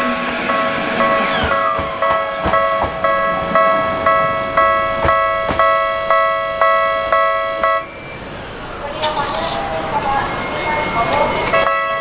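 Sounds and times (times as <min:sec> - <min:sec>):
electronic departure bell chiming: 0:00.5 - 0:08.2.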